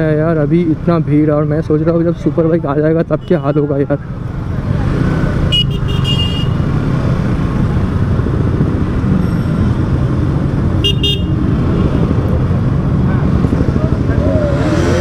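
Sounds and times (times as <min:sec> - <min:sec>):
motorcycle engine rumbling: 0:00.0 - 0:15.0
vehicle horn beeps: 0:10.8 - 0:11.4.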